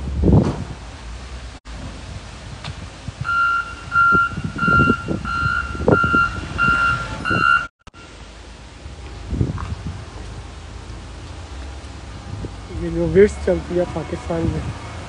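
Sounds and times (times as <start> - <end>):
low rumbling thuds: 0.0 - 3.2
reversing alarm beeping: 3.2 - 8.1.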